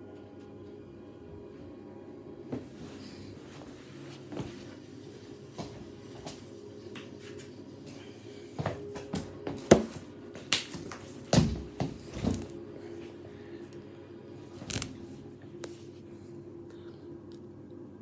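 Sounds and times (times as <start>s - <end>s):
faint steady hum: 0.0s - 18.0s
handling knocks and rustles: 8.8s - 12.6s.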